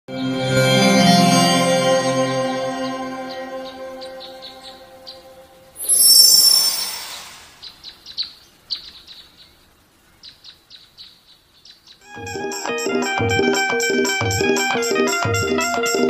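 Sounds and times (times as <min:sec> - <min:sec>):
high shimmering ring: 0:00.1 - 0:07.6
loud whoosh: 0:05.8 - 0:07.6
short bird chirps: 0:05.8 - 0:09.6.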